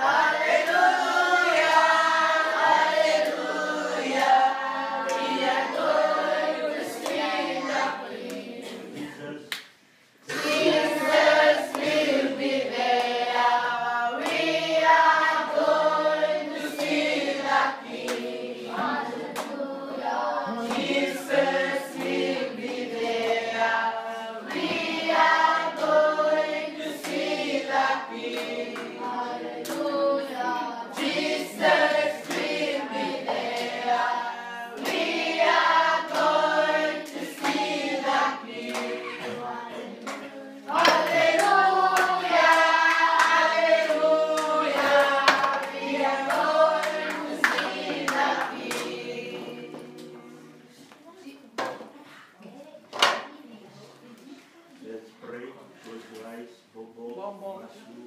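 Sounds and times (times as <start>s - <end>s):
children singing: 0.0s - 9.4s, 10.2s - 50.6s
hand claps: 9.5s - 9.8s, 14.2s - 14.5s, 18.0s - 18.3s, 20.5s - 21.1s, 27.0s - 27.3s, 28.3s - 29.9s, 34.8s - 35.1s, 37.1s - 37.8s, 38.6s - 39.4s, 40.0s - 50.2s.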